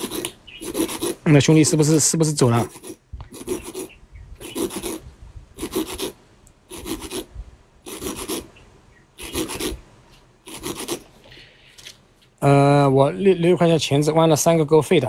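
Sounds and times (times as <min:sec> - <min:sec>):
hook rasping on grinding stone: 0:00.0 - 0:01.2, 0:02.6 - 0:05.0, 0:05.6 - 0:07.3, 0:07.9 - 0:08.5, 0:09.2 - 0:09.8, 0:10.5 - 0:11.0.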